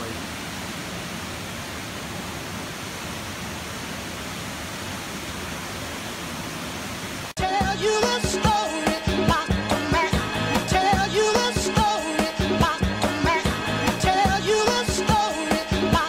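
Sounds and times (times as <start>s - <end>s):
waterfall roaring: 0.0s - 7.4s
music: 7.4s - 16.0s.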